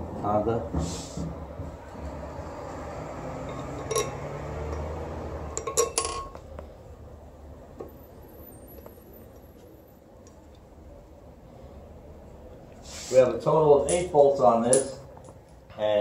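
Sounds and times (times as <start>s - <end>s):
metallic clinks of bolts: 5.6s - 6.4s.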